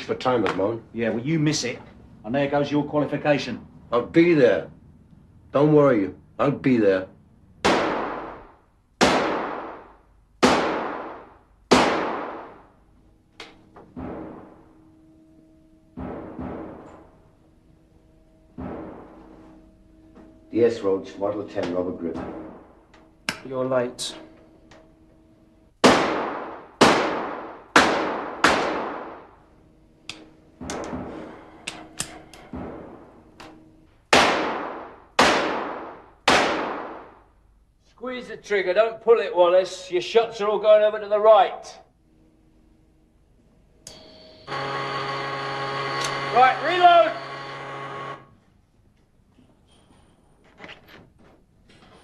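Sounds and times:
revolver shots echoing: 7.6 - 12.7, 25.8 - 29.4, 31.7 - 37.3
gunshots ringing out: 7.6 - 12.8, 14.0 - 14.8, 18.6 - 19.2, 25.8 - 29.4, 31.7 - 37.3
sharp clicks: 30.1 - 30.9.

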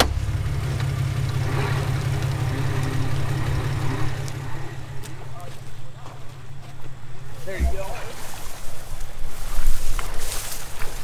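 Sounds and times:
car engine running: 0.0 - 8.1.

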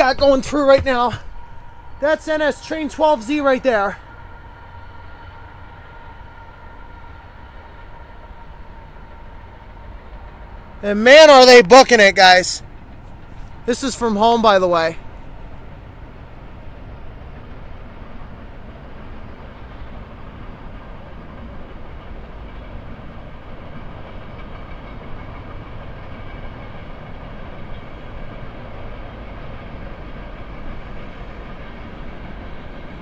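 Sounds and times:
freight train passing: 0.0 - 33.0.

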